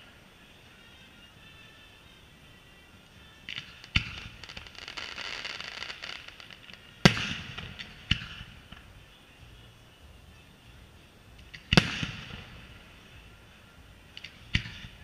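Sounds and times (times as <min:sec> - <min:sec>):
firework crackling: 0:00.0 - 0:09.1, 0:11.3 - 0:13.4, 0:14.1 - 0:15.0
firework bangs: 0:03.5 - 0:08.9, 0:11.5 - 0:12.8, 0:14.2 - 0:15.0.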